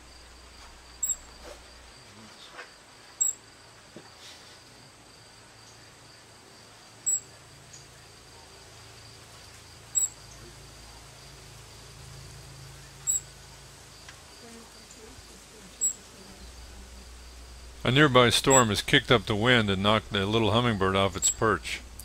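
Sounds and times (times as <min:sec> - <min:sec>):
young bird high chirps: 0:01.0 - 0:01.3, 0:13.0 - 0:13.3.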